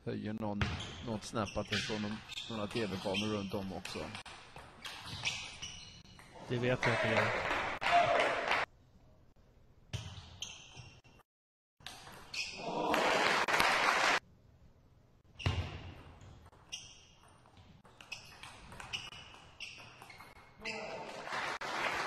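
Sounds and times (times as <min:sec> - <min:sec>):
crowd applause: 0:06.8 - 0:08.6, 0:12.7 - 0:14.2, 0:21.0 - 0:22.0.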